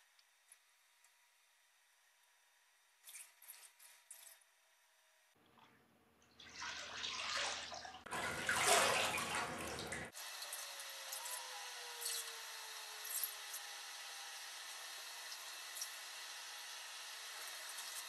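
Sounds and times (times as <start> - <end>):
water splashing in a wash basin: 5.4 - 10.2.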